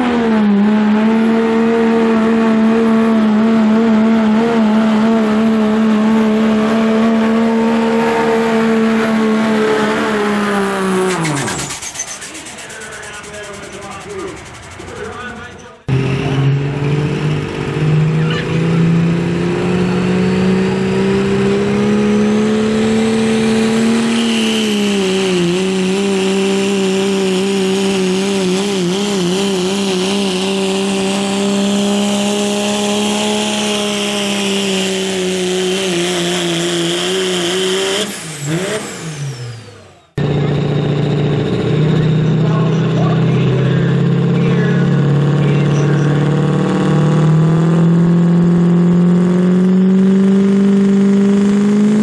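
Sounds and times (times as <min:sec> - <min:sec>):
diesel truck engine at high revs: 0:00.0 - 0:52.0
turbo whine: 0:06.6 - 0:31.0, 0:33.5 - 0:52.0
diesel engine at high idle: 0:11.0 - 0:18.9, 0:38.1 - 0:48.4.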